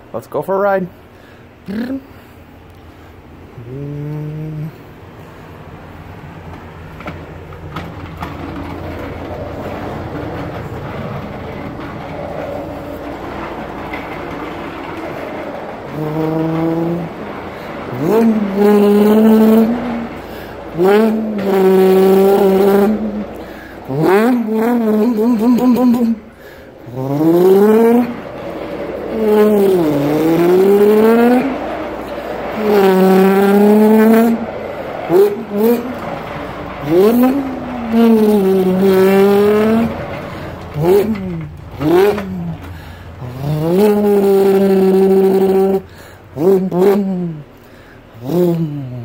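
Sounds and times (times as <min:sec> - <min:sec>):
man imitating race car engine: 0:01.6 - 0:02.2, 0:03.6 - 0:05.0, 0:15.0 - 0:26.3, 0:26.9 - 0:47.5, 0:48.2 - 0:49.0.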